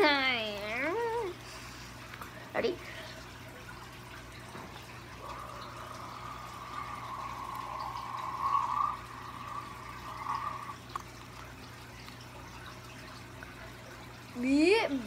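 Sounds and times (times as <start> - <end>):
breath blowing into slime bubble: 5.2 - 10.9.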